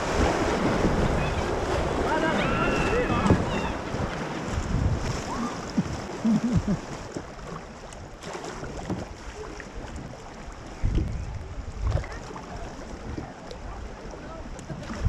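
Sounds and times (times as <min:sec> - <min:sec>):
wind buffeting microphone: 0:00.0 - 0:07.0, 0:09.9 - 0:12.2
river water rushing: 0:00.0 - 0:10.6.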